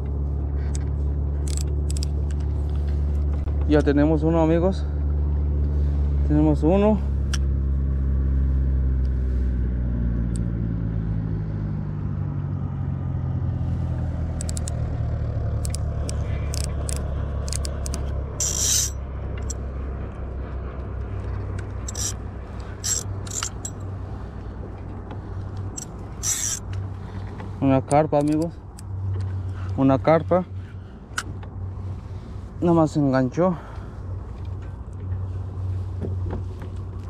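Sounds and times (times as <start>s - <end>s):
sharp clicks: 14.4s - 14.8s, 15.6s - 19.6s
motor humming: 15.5s - 19.6s, 21.1s - 27.6s.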